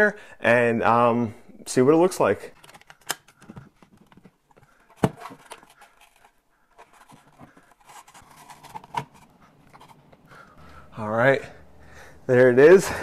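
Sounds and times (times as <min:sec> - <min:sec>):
scraping and rustling: 0:02.6 - 0:10.4.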